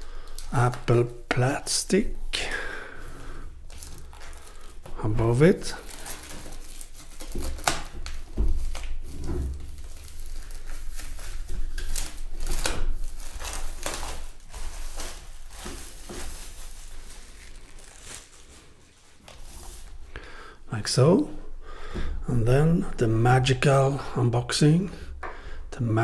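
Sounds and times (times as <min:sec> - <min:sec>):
plastic wrap crinkling and tearing: 0:00.0 - 0:20.1.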